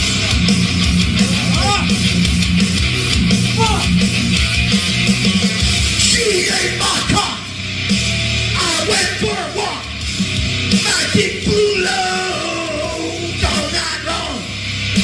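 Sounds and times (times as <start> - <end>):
heavy metal band playing: 0.0 - 15.0
person yelling vocals: 1.3 - 2.0, 3.5 - 4.0, 6.0 - 7.5, 8.6 - 9.9, 10.8 - 14.4.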